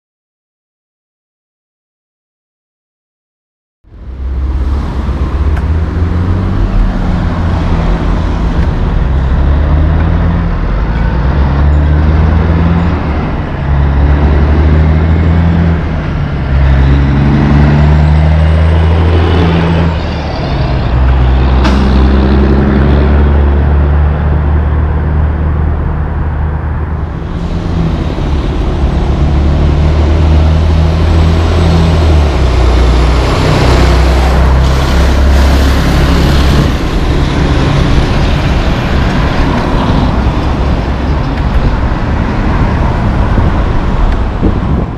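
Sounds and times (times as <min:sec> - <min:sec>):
heavy diesel engines running: 0:03.9 - 0:44.9
wind buffeting microphone: 0:25.6 - 0:44.9.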